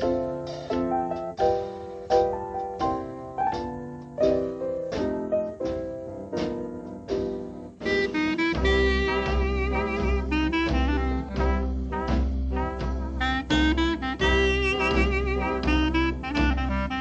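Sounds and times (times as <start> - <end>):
jazz piano chords: 0.0 - 17.0
horns holding wavering notes: 7.9 - 11.8, 13.2 - 17.0.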